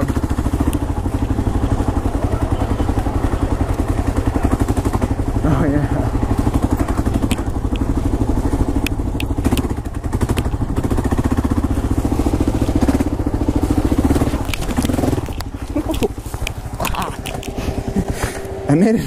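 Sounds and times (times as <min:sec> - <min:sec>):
motorcycle engine chugging: 0:00.0 - 0:19.0
sharp clicks and knocks: 0:06.5 - 0:08.1, 0:08.7 - 0:11.1, 0:13.8 - 0:17.6.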